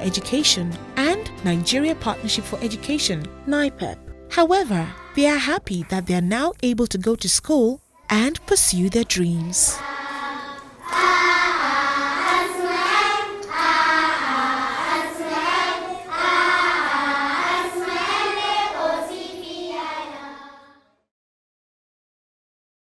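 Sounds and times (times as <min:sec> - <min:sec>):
girls singing together: 0:04.7 - 0:05.2, 0:08.1 - 0:20.8.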